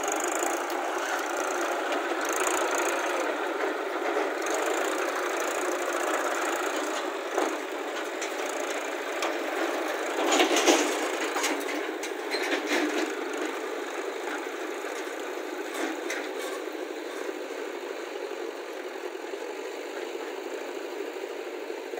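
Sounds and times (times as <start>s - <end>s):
trolley knocking and rattling: 0.0s - 13.6s
tractor engine running: 0.0s - 21.9s.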